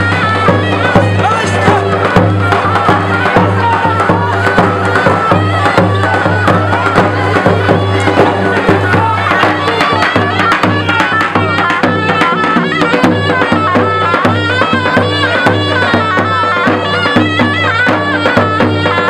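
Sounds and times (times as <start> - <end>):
bagpipe dance tune: 0.0 - 19.0
sharp rhythmic knocks: 0.0 - 19.0.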